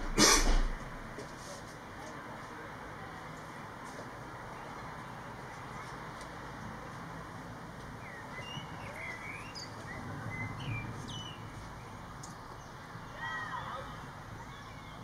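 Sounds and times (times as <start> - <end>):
low background noise: 0.0 - 15.0
blackbird singing: 8.0 - 13.4.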